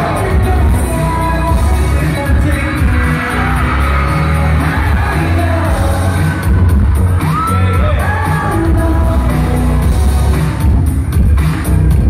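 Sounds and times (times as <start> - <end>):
group singing over pop track: 0.0 - 6.9, 7.8 - 10.2
crowd shouting: 2.6 - 8.7.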